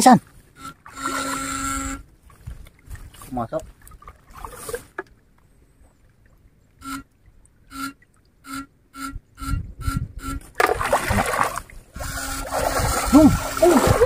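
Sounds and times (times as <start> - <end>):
short buzzing pulses: 0.5 - 2.1, 6.8 - 14.0
water sloshing and splashing: 0.6 - 8.4, 10.5 - 14.0.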